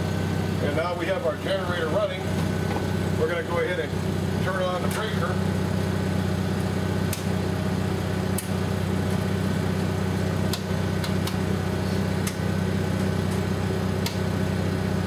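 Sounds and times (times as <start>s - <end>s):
generator engine hum: 0.0s - 15.0s
circuit breaker clicks: 7.1s - 7.3s, 10.5s - 11.4s, 12.2s - 12.4s.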